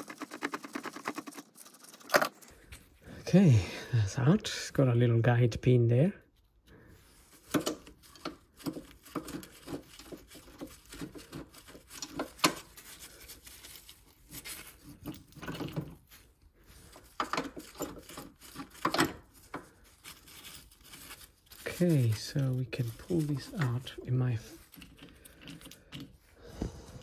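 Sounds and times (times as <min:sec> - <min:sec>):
hands handling metal parts: 0:06.3 - 0:27.0.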